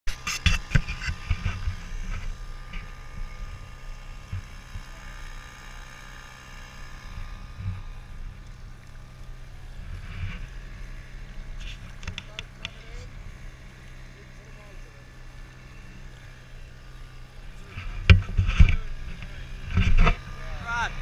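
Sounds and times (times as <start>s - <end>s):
outboard motor running: 0.1s - 21.0s
low rumble with thumps: 15.6s - 21.0s.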